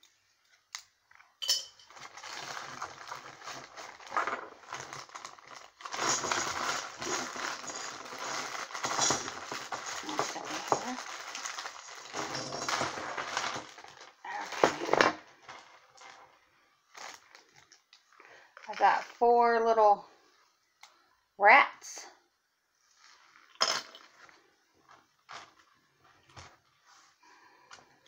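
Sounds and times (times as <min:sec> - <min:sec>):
plastic pieces clinking and rattling: 0:01.1 - 0:16.3.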